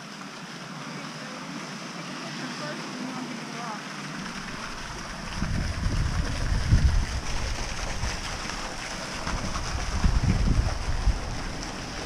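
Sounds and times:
small fountain splashing: 0.0s - 12.0s
wind buffeting microphone: 4.4s - 12.0s.

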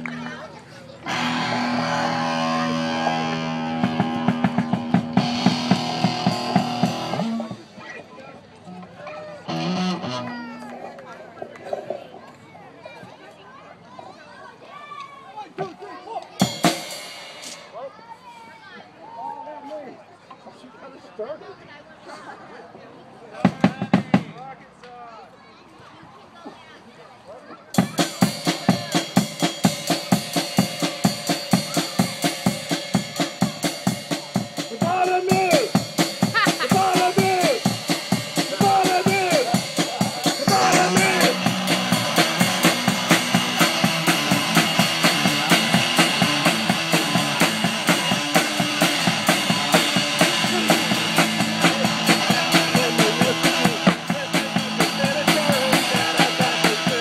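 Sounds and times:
drum kit beat: 1.1s - 7.8s, 16.4s - 17.8s, 27.8s - 57.0s.

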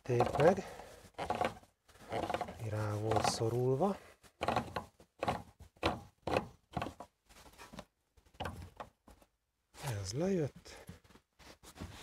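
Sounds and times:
retaining ring scraping and knocking: 0.0s - 9.2s.

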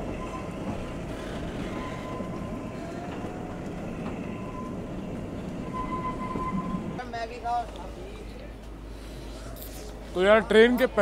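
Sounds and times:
train wheels rumbling on rails: 0.0s - 7.8s
faint thin wheel squeal: 5.6s - 6.9s.

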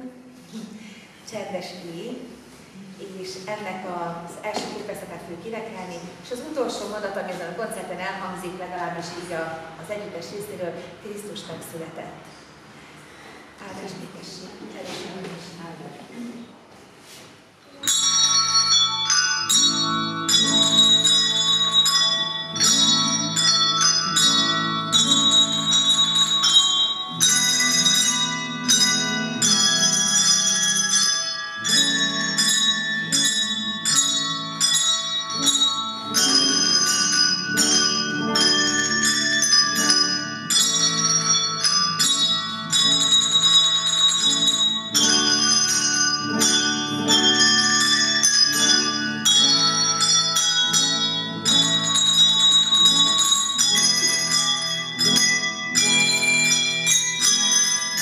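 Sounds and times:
handbell ensemble playing: 17.6s - 58.0s.

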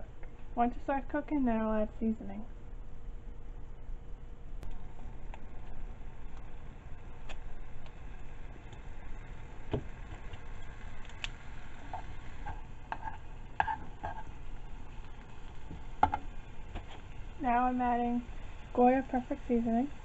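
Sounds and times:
chicken sizzling in oil: 4.9s - 20.0s
utensil scraping a pan: 11.8s - 14.5s.

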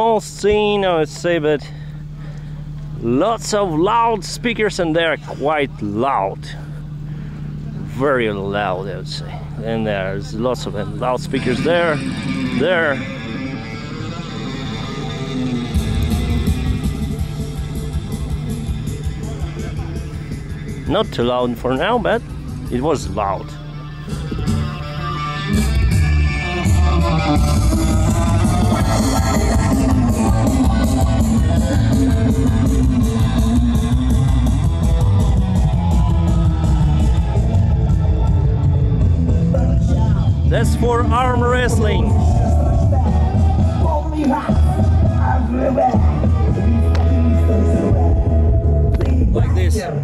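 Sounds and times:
guitar music over loudspeakers: 10.8s - 50.0s.

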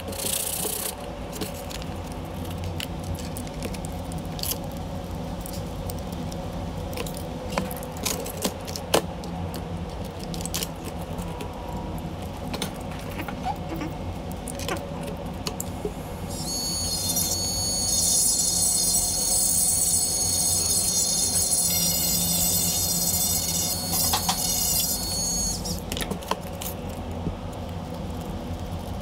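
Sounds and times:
rotary tool high-pitched whine: 15.8s - 25.9s
bit grinding wax: 16.3s - 29.0s.

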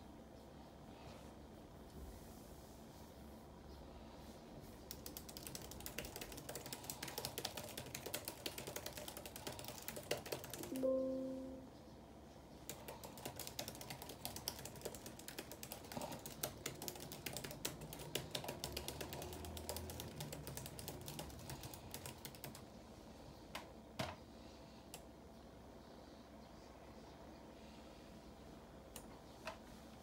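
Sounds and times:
laptop keyboard typing: 4.8s - 11.6s, 12.6s - 22.8s.

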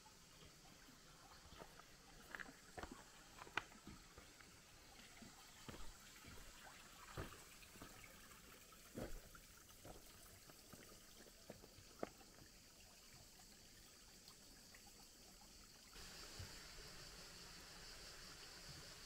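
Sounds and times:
footsteps on rocks and gravel: 1.6s - 4.3s, 5.7s - 6.5s.

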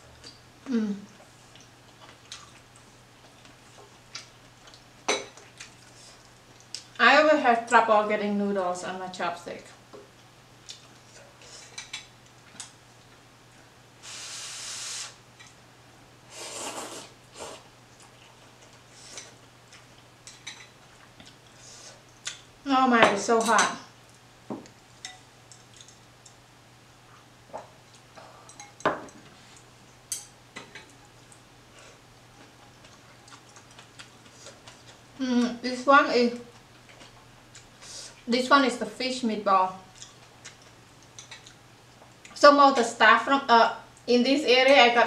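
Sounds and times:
slurping noodles: 16.3s - 17.6s.

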